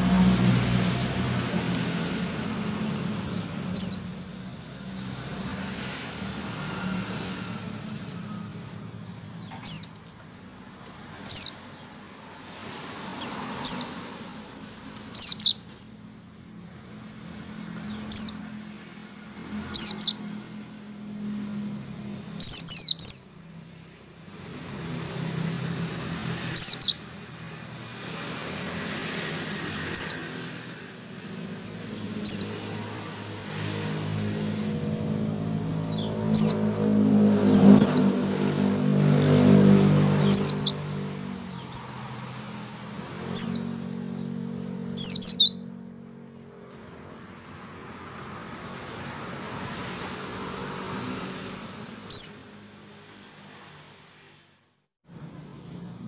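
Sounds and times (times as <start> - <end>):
bird chirping: 2.0 - 5.8, 6.6 - 10.6, 11.2 - 12.0, 13.0 - 14.0, 15.1 - 18.6, 19.5 - 23.5, 25.4 - 27.1, 29.1 - 30.5, 31.2 - 32.8, 34.8 - 47.6, 52.0 - 52.4.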